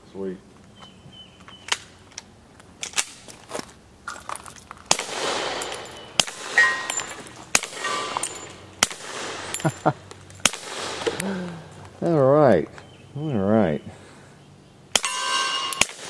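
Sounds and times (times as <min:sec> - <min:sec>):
suppressed pistol shots: 0:04.9 - 0:09.7, 0:10.4 - 0:11.3, 0:14.9 - 0:16.0
steel target plates clanging: 0:05.3 - 0:10.0, 0:15.0 - 0:16.0.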